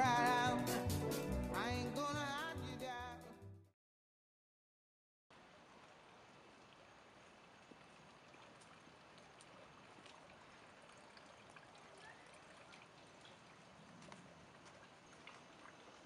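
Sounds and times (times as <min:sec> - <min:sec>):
faint outdoor hiss: 0:05.3 - 0:13.8
small ticks: 0:14.0 - 0:15.8.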